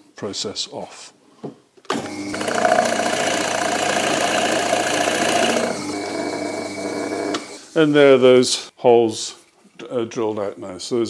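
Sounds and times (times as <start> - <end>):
drill bit cutting wood: 1.9 - 7.6
drill motor hum: 1.9 - 7.6.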